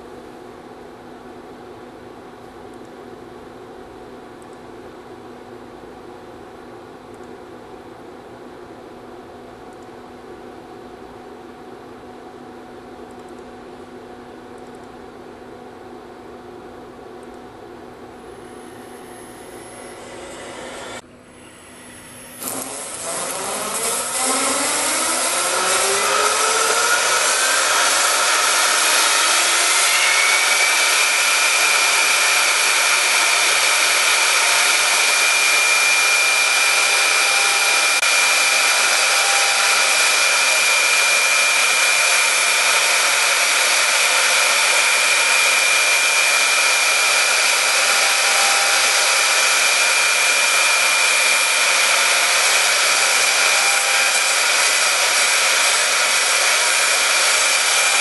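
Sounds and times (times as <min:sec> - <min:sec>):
router spindle whine: 0:18.4 - 0:58.0
hiss of cutting foam: 0:21.8 - 0:58.0.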